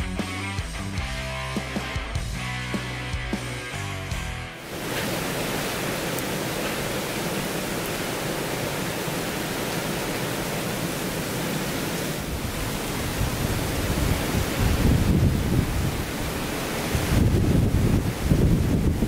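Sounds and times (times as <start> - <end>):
rain hissing on snow: 4.6 - 19.0
wind rumble on microphone: 12.1 - 19.0.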